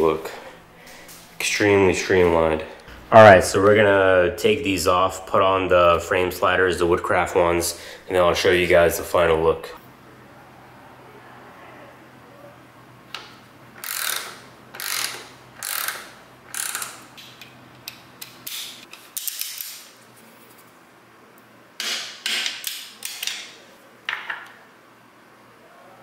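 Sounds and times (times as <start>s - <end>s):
ratchet wrench clicking: 13.8s - 17.0s.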